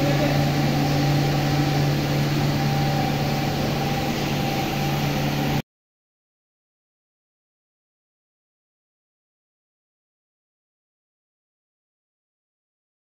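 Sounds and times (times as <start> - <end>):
machine hum: 0.0 - 5.6.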